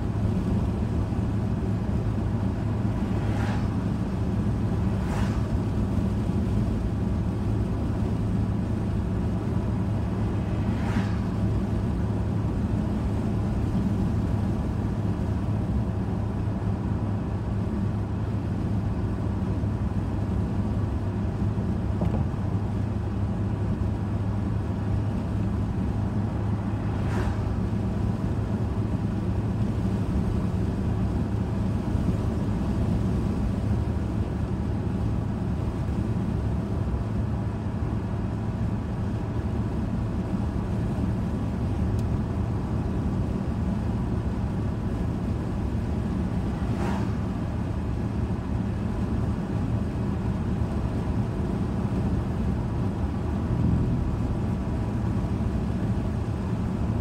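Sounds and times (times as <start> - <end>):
car driving heard from cabin: 0.0 - 57.0
brief rushing sounds: 46.5 - 47.3.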